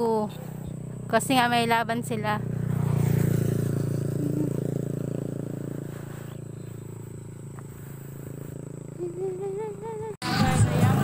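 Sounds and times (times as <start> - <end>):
small motorcycle engine passing: 0.0 - 11.0.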